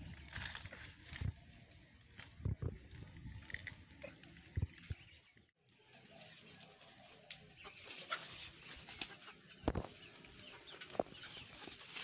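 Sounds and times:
chickens clucking: 0:05.9 - 0:12.0.

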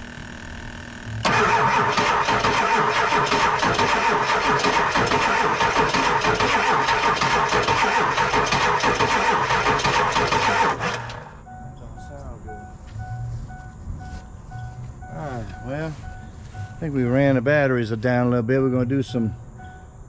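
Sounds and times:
starter cranking diesel engine: 0:00.0 - 0:11.4.

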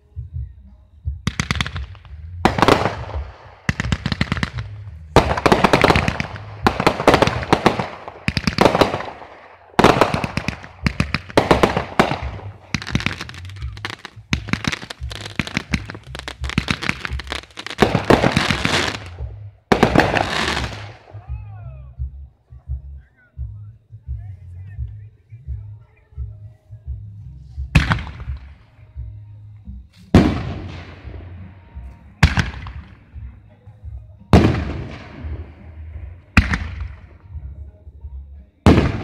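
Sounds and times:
low rumble: 0:00.0 - 0:39.0
fireworks shells bursting and crackling: 0:01.2 - 0:21.3, 0:27.6 - 0:28.9, 0:29.8 - 0:37.5, 0:38.6 - 0:39.0.

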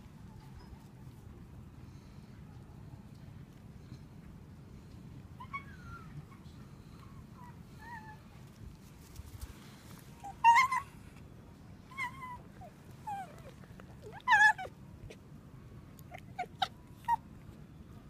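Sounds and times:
fox calling: 0:10.2 - 0:11.0.

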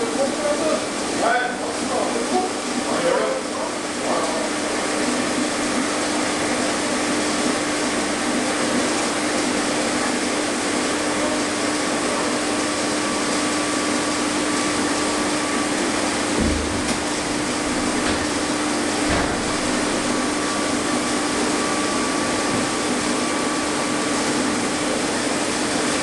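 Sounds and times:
large electric motor machine running: 0:00.0 - 0:26.0
short low thump: 0:16.3 - 0:20.6.

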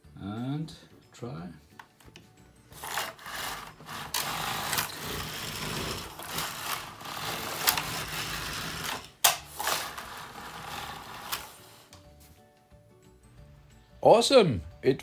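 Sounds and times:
knitting machine carriage rushing: 0:02.8 - 0:11.8.

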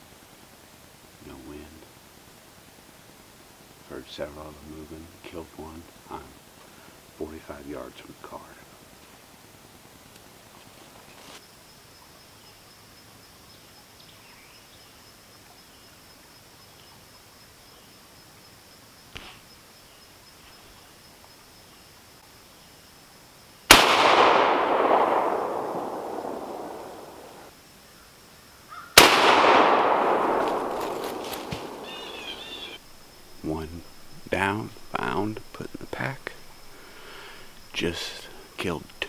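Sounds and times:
gunshots echoing through woods: 0:23.7 - 0:27.5, 0:28.7 - 0:39.0.

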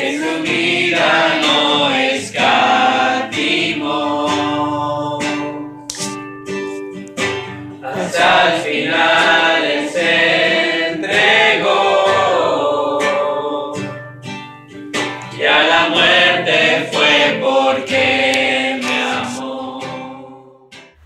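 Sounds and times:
group singing worship song: 0:00.0 - 0:05.7, 0:07.8 - 0:14.0, 0:15.3 - 0:21.0
strummed guitar: 0:00.0 - 0:21.0.

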